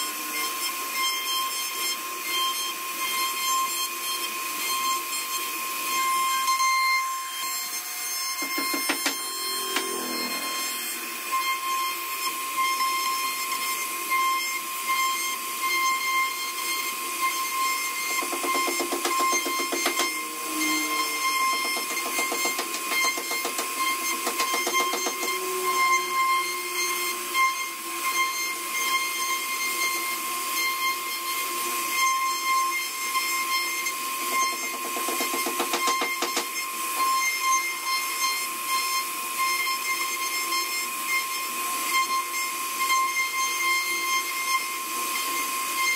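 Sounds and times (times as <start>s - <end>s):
router spindle whine cutting wood: 0.0s - 45.9s
rapid buzzing rattle: 21.2s - 25.4s.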